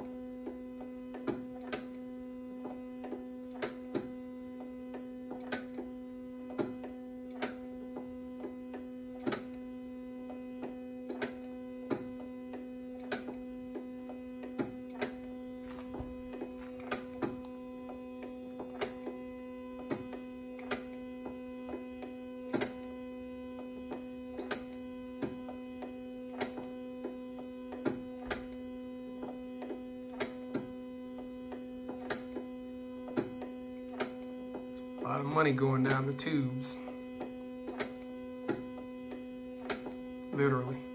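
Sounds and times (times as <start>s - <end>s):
printer pump humming: 0.0s - 40.9s.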